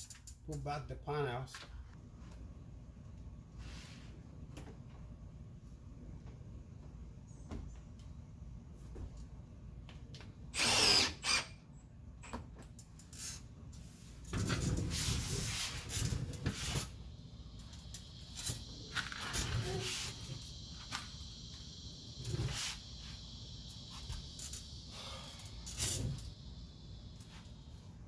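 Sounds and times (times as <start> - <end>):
cordless drill driving screw: 10.6 - 11.6.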